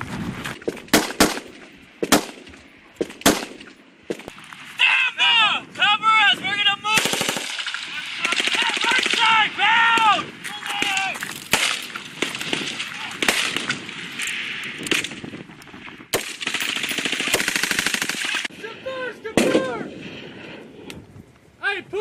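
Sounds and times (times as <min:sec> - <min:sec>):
single rifle shots: 0:00.6 - 0:04.3, 0:10.8 - 0:13.9, 0:14.8 - 0:18.5, 0:19.4 - 0:19.7
automatic gunfire: 0:00.9 - 0:03.6, 0:07.0 - 0:09.3, 0:16.1 - 0:18.5.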